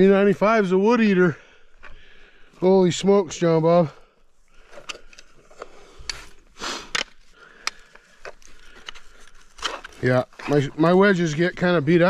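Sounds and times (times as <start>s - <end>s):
rustling scrape: 4.6s - 11.7s
footsteps crunching over snow: 6.2s - 12.0s.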